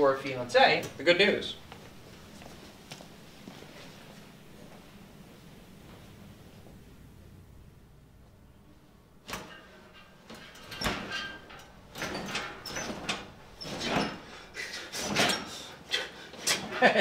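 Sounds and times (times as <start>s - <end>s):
hospital bed rustling and creaking: 0.7s - 7.0s, 9.2s - 17.0s.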